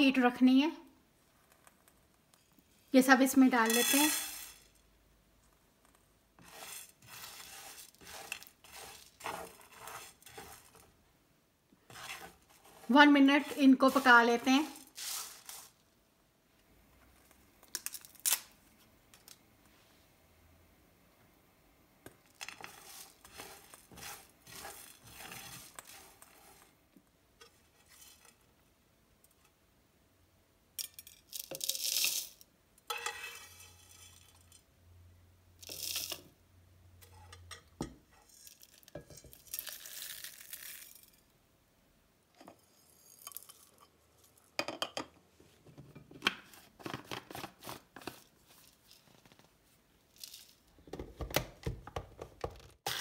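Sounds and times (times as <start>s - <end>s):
dry spices scraping and rattling: 3.3s - 4.9s, 6.4s - 11.0s, 11.9s - 15.8s, 22.3s - 26.8s, 27.4s - 28.5s, 30.8s - 34.7s, 35.6s - 36.3s, 38.1s - 41.3s, 42.4s - 44.5s, 46.8s - 49.4s, 50.1s - 50.9s.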